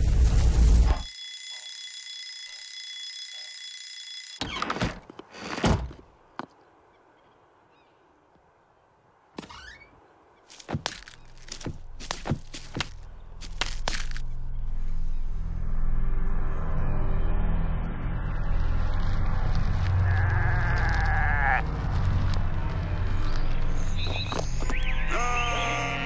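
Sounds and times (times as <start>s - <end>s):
high ringing tone: 0.9s - 4.4s.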